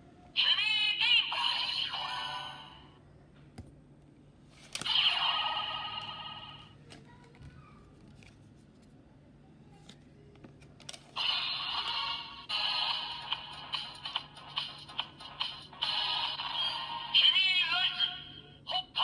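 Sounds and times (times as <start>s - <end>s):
toy electronic sound effects: 0.4s - 2.8s, 4.8s - 6.7s, 11.2s - 19.0s.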